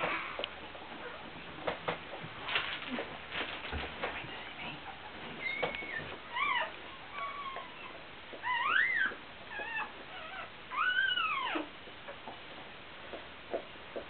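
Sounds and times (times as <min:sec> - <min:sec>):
puppy squealing: 0:05.4 - 0:12.2.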